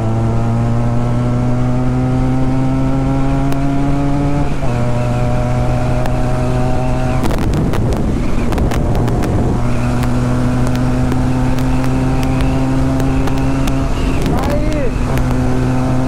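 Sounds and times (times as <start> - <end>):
motorcycle engine drone: 0.0 - 16.0
rough rushing noise with clicks: 7.0 - 16.0.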